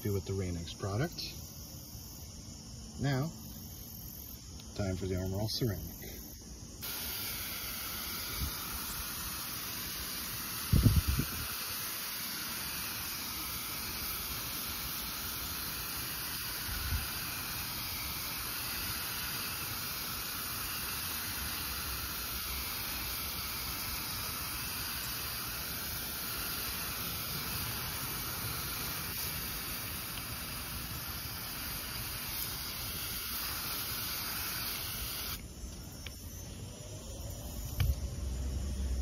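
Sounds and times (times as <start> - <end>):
water spray hissing on glass: 6.8 - 35.4.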